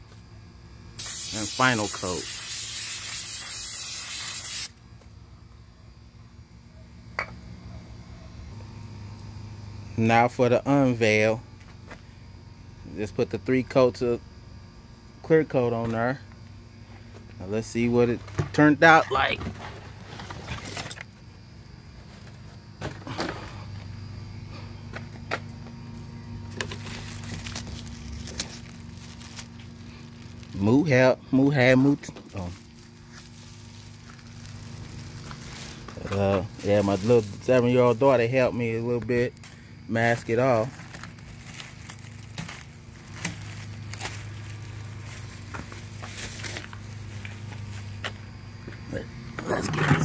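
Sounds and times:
steady low hum: 0:00.0 - 0:50.0
aluminium foil crackling: 0:26.5 - 0:30.8, 0:31.6 - 0:38.1, 0:38.8 - 0:48.0
plastic sheet crinkling: 0:26.6 - 0:30.6, 0:32.2 - 0:37.6, 0:40.1 - 0:47.8.

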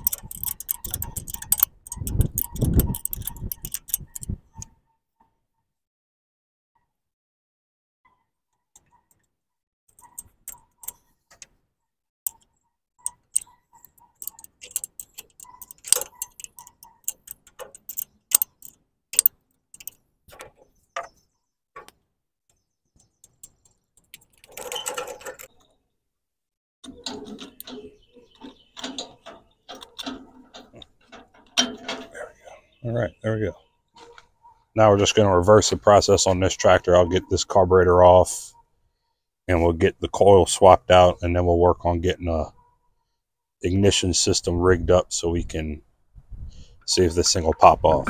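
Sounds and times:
ratchet wrench clicking: 0:00.0 - 0:04.3, 0:14.2 - 0:20.0
metallic scraping and clinks: 0:00.0 - 0:04.4, 0:13.0 - 0:20.0, 0:26.9 - 0:32.4.

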